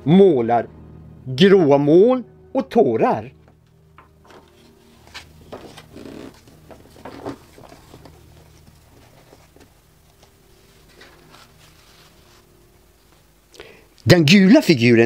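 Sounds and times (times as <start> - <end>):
book page rustling: 4.2 - 13.3.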